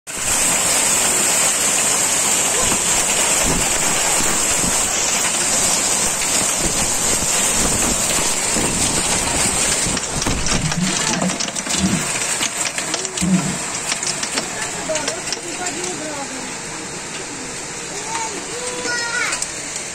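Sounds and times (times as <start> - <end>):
heavy rain hissing: 0.1 - 19.9
raindrops ticking nearby: 0.3 - 16.3
storm wind: 2.6 - 12.4.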